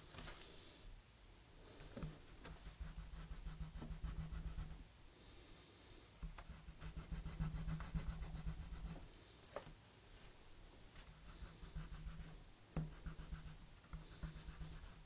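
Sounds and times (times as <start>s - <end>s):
pencil scratching on paper: 2.5s - 4.8s, 6.3s - 9.1s, 11.1s - 15.0s.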